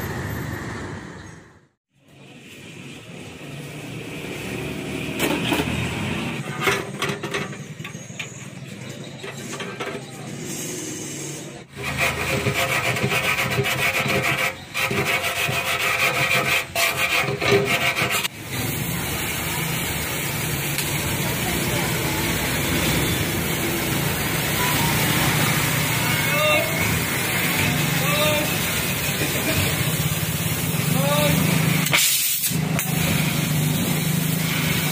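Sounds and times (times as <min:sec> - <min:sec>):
hand tool scraping steel: 0:09.3 - 0:18.3
gas welding torch hissing: 0:26.6 - 0:34.9.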